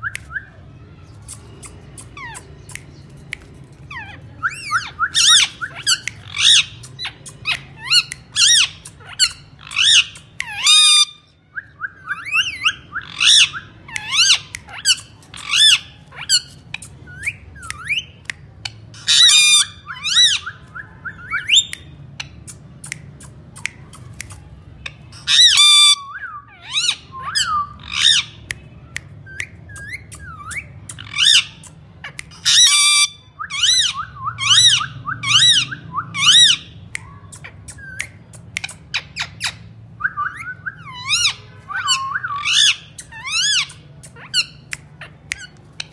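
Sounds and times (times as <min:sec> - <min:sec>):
parakeet squawking: 0:03.8 - 0:11.2, 0:12.0 - 0:18.1, 0:19.0 - 0:21.7, 0:25.1 - 0:28.4, 0:29.8 - 0:45.9.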